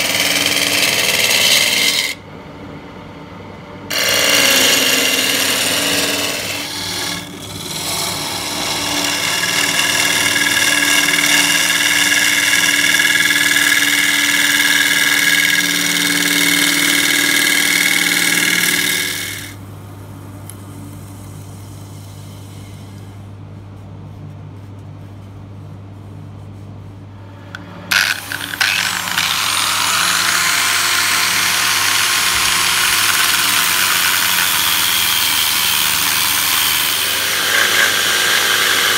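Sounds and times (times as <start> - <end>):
angle grinder sanding: 0.0 - 2.2, 3.9 - 19.6, 27.9 - 38.9
gouge shaving wood: 0.0 - 2.2, 3.9 - 19.6, 27.9 - 38.9
lathe motor hum: 0.0 - 2.2, 3.9 - 19.6, 27.3 - 38.9.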